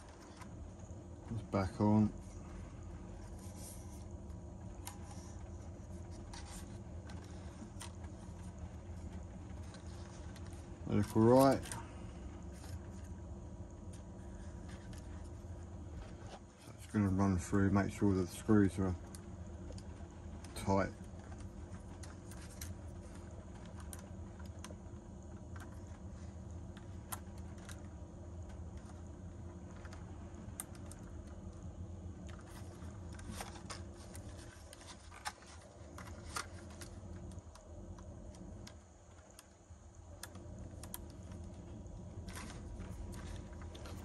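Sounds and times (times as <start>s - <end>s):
steady low hum: 0.0s - 44.0s
hands handling a drone: 32.2s - 39.6s.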